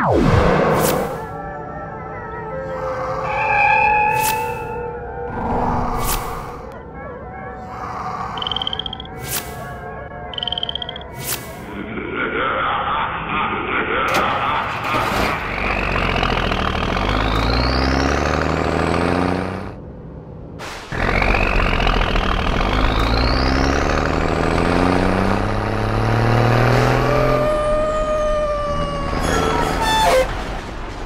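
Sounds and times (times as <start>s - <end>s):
steady high tone: 8.3s - 11.1s
truck engine revving: 14.1s - 19.9s, 20.7s - 31.0s.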